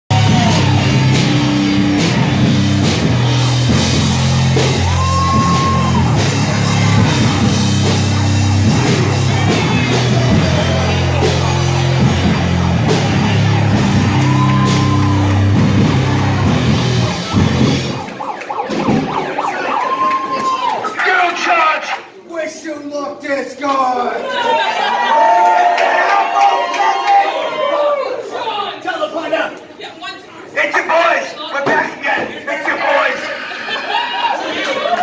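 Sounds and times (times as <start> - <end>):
loud rock music: 0.1 - 19.5.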